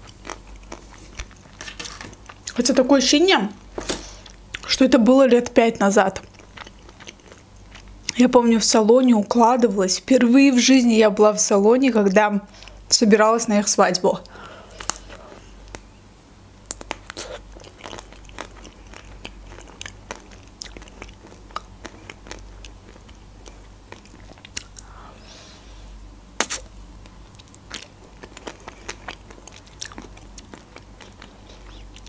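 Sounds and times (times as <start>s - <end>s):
person chewing ice cream: 0.0s - 2.6s, 6.2s - 8.2s, 16.6s - 25.0s, 26.4s - 32.0s
wet mouth clicks: 26.4s - 26.7s.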